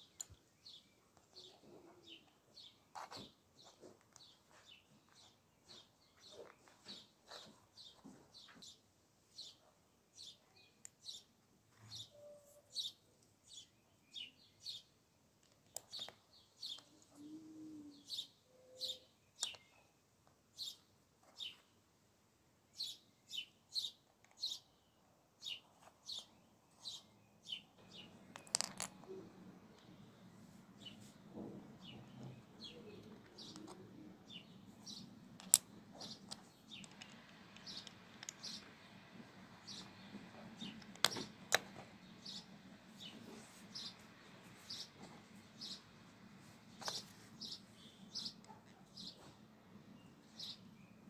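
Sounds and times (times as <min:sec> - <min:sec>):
small bird chirping: 0:09.4 - 0:14.9, 0:15.6 - 0:21.7, 0:22.7 - 0:30.2, 0:31.8 - 0:45.0, 0:45.6 - 0:45.9, 0:46.7 - 0:49.3, 0:50.0 - 0:51.0
plastic bricks clicking together: 0:28.3 - 0:29.2, 0:35.4 - 0:38.7, 0:40.6 - 0:41.8.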